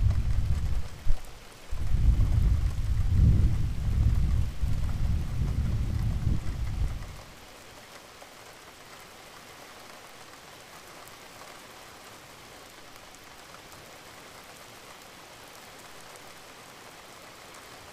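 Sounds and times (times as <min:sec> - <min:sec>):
raindrops ticking: 0:00.0 - 0:11.6
steady rain hiss: 0:00.0 - 0:17.9.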